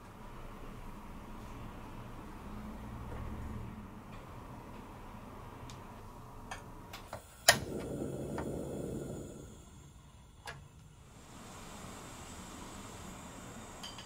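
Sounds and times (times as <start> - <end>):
gas burner rushing: 7.0 - 14.0
igniter click: 7.1 - 8.6.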